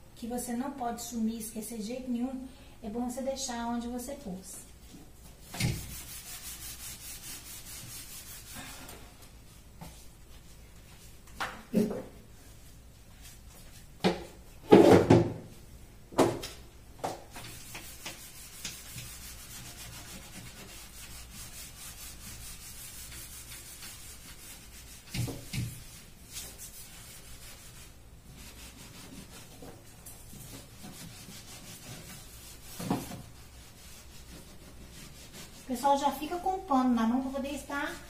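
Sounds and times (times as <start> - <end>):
sponge scrubbing cabinet: 5.4 - 8.8, 17.3 - 38.0
knocks against cabinet: 14.0 - 15.4.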